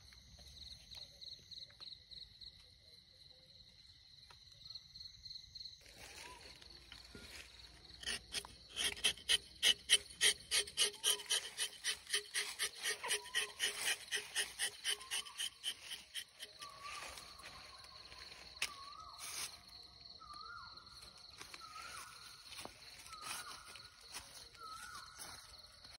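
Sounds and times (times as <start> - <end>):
high insect tone: 3.8 - 25.9
knife rasping on tree bark: 7.8 - 17.5.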